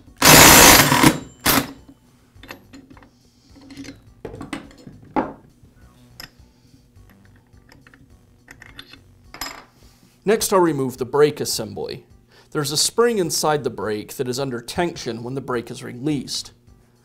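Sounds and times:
impact driver hammering: 0.2 - 1.7.

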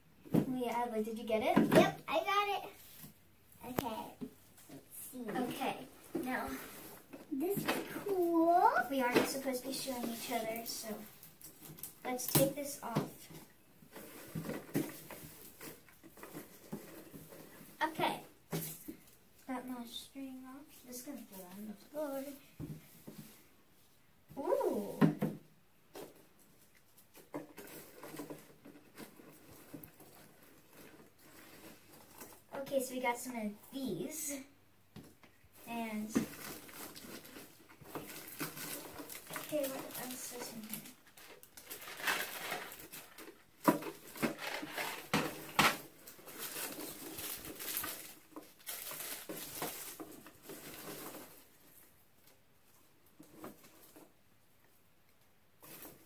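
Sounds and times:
packaging rustling and crinkling: 5.4 - 17.8, 26.0 - 32.5, 35.5 - 54.2, 55.6 - 56.0
shredded paper rustling: 35.9 - 51.6.

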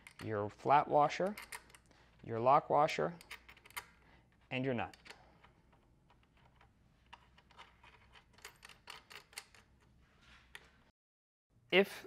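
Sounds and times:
metal washers clicking: 1.2 - 1.9.

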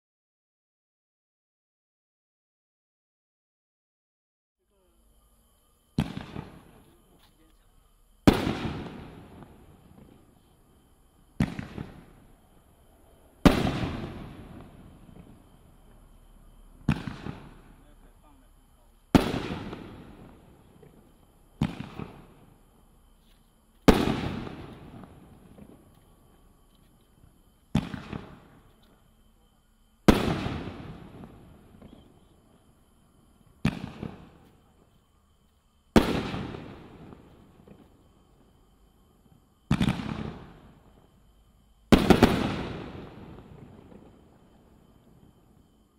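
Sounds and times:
firework shell booming: 6.0 - 6.8, 8.2 - 10.2, 11.3 - 12.4, 13.4 - 16.0, 16.8 - 18.4, 19.1 - 22.7, 23.9 - 25.9, 27.7 - 28.6, 30.0 - 32.5, 33.6 - 34.5, 39.7 - 40.7, 41.9 - 44.2.

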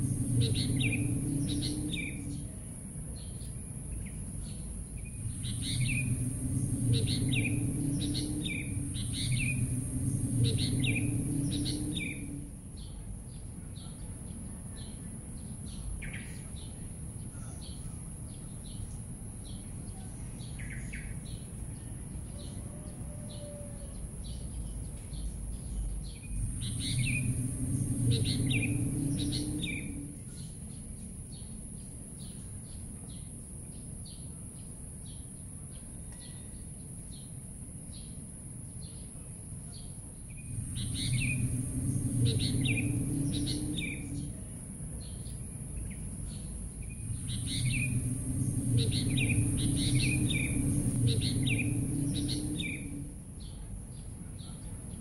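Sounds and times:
low rumble: 0.0 - 13.6, 24.0 - 31.3, 40.0 - 54.3
steady high hiss: 0.0 - 13.7, 25.3 - 35.7, 36.7 - 54.3
birds chirping: 0.0 - 21.8, 24.2 - 31.5, 39.7 - 55.0.

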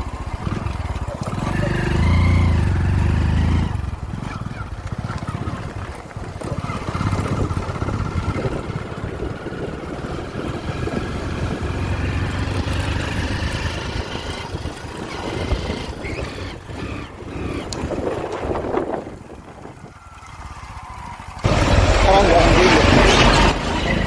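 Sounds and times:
motorcycle engine running: 0.0 - 24.0.

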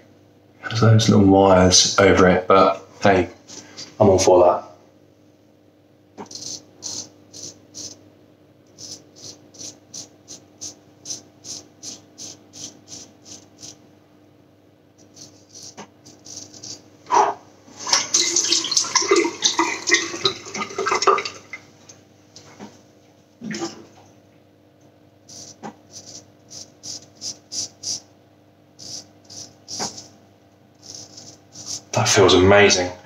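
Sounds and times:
razor scraping stubble: 6.2 - 8.0, 8.8 - 13.8, 15.0 - 16.8, 25.3 - 28.0, 28.8 - 30.1, 30.8 - 32.0
tap water running: 17.8 - 21.7.

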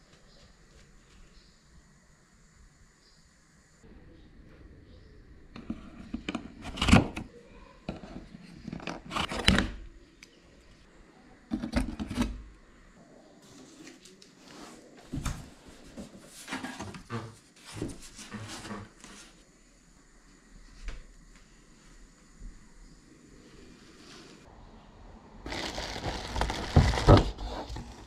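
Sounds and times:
cardboard scraping: 25.5 - 28.0.

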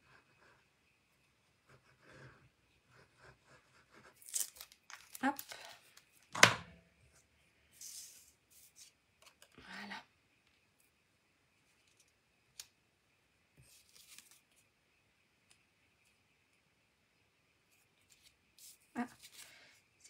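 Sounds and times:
paper rustling: 13.6 - 14.6.

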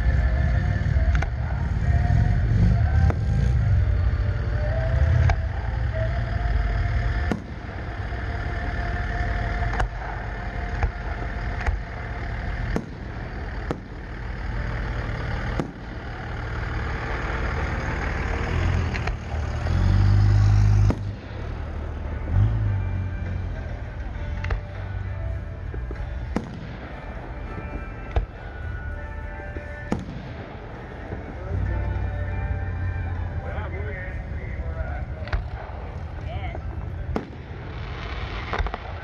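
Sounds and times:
steady low rumble: 0.0 - 39.0
fireworks bangs: 7.1 - 8.1, 9.6 - 14.2, 15.4 - 16.3, 20.8 - 21.5, 26.3 - 28.4, 29.8 - 31.3, 37.0 - 39.0.

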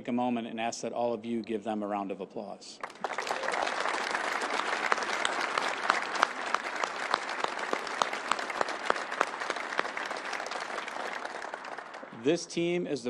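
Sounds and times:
audience applauding: 2.8 - 12.2.

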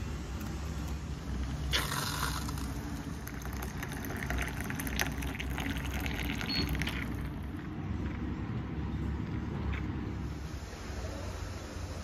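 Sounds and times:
water pouring into a mug: 1.7 - 7.4.

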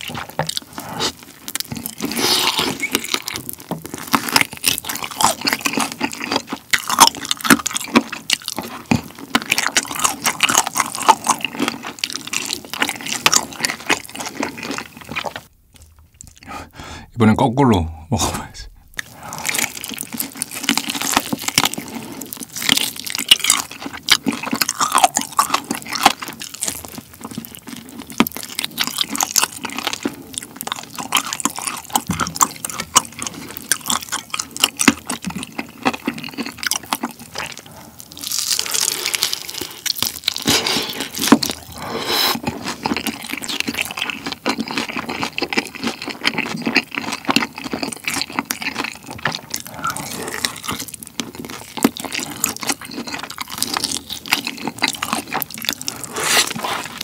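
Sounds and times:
person eating and chewing: 0.0 - 17.1, 18.1 - 57.0
wet crunchy mouth clicks: 18.2 - 57.0.

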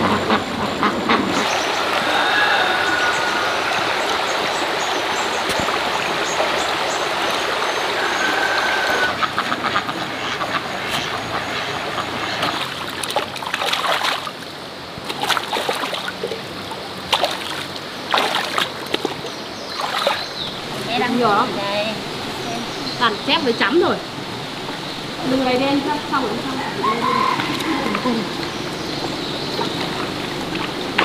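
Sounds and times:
stream running over rocks: 0.0 - 31.0
water splashes and knocks: 2.8 - 21.4, 27.3 - 31.0.

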